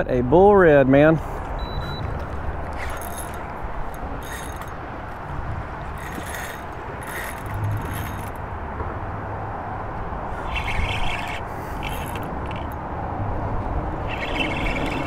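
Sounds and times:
fishing reel whirring: 2.7s - 5.2s, 5.8s - 8.4s, 10.3s - 12.8s, 14.0s - 15.0s
wind on microphone: 10.0s - 15.0s.

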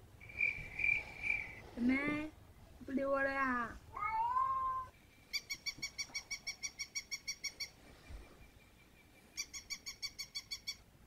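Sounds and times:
cat meowing: 3.9s - 4.9s.

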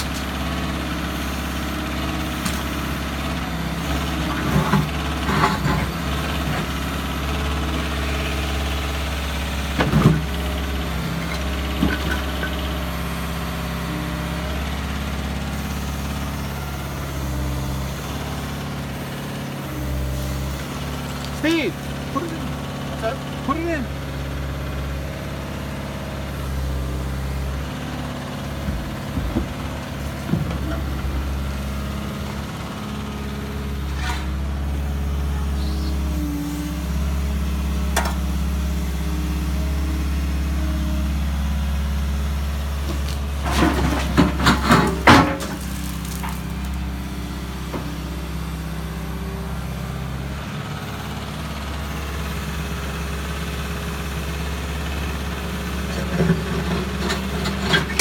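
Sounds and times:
excavator diesel engine running: 0.0s - 58.0s
concrete cracking and crashing: 43.0s - 46.9s.

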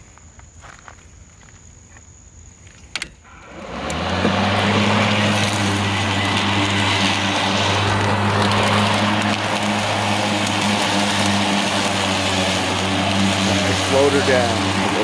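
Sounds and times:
electric lawn mower running: 3.2s - 15.0s.

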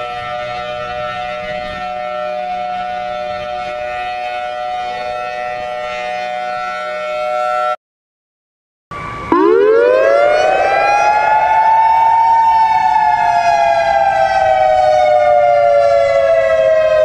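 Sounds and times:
alarm siren steady chord: 0.0s - 7.8s, 8.9s - 17.0s.

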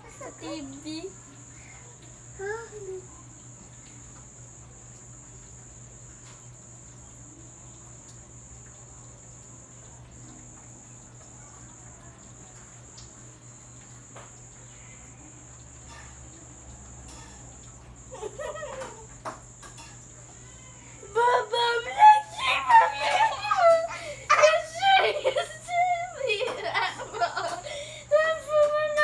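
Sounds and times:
cricket trilling: 0.0s - 29.0s
low steady hum: 0.0s - 29.0s
girl's voice: 2.4s - 3.1s, 21.0s - 26.6s, 28.1s - 29.0s.

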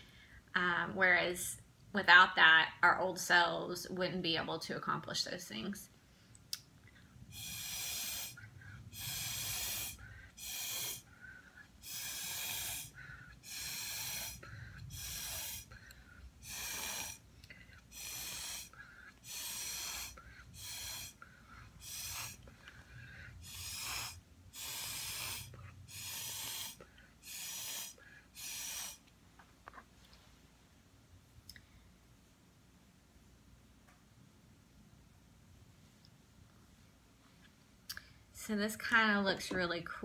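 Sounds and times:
breath blown through a straw: 7.3s - 29.1s.

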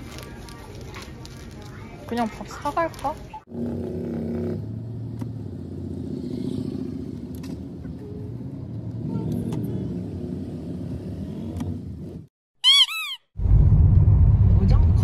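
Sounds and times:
car engine and road noise: 2.0s - 12.3s, 13.4s - 15.0s.

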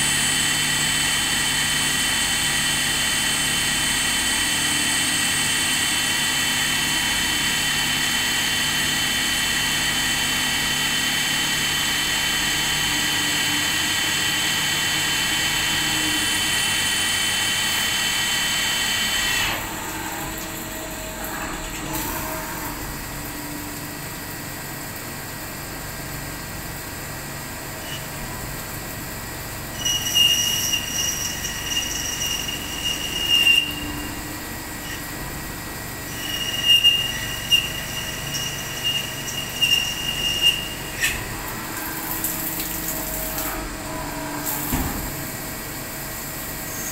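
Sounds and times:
lathe high whine: 0.0s - 23.0s, 29.6s - 44.8s
cutting tool squealing: 29.8s - 34.2s, 36.0s - 42.4s.

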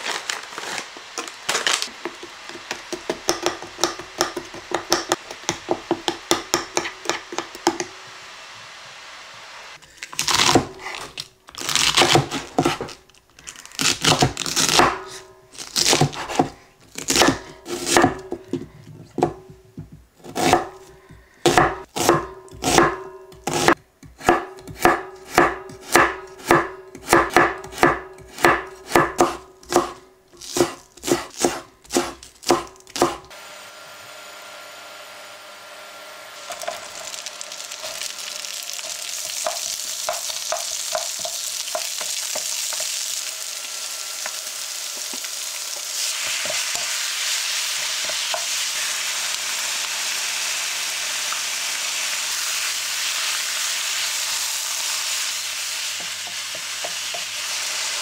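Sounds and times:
knife chopping on wooden board: 2.1s - 7.9s, 11.9s - 12.9s, 15.8s - 18.5s, 21.5s - 33.3s
vegetables sizzling in frying pan: 7.0s - 9.8s, 33.4s - 58.0s.

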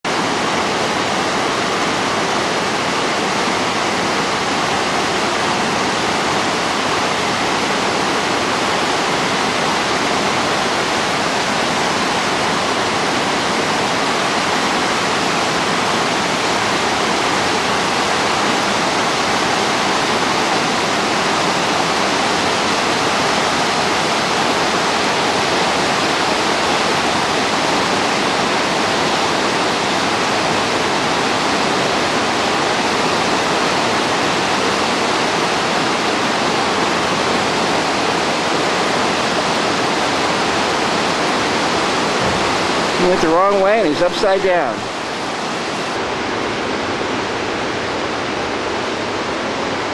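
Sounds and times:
whitewater rushing: 0.0s - 49.9s.

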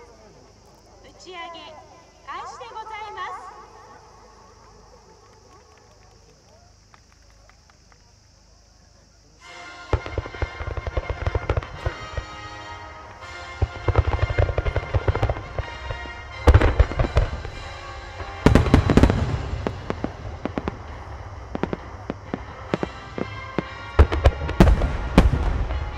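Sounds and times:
firework shell bursts crackling: 9.4s - 25.9s.

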